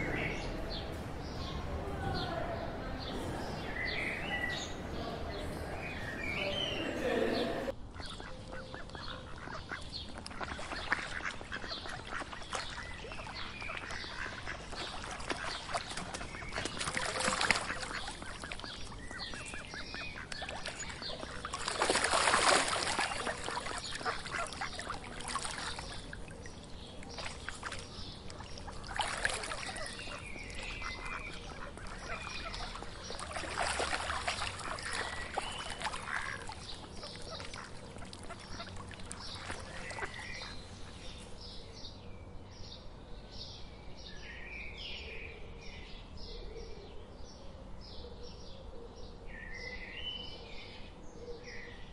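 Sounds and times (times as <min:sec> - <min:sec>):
ducks quacking: 0:02.2 - 0:41.1.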